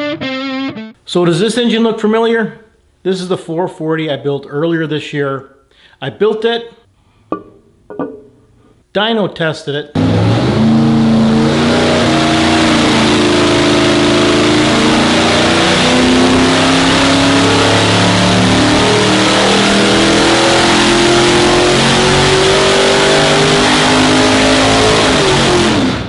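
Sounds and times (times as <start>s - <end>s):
engine running under load: 10.0s - 26.0s.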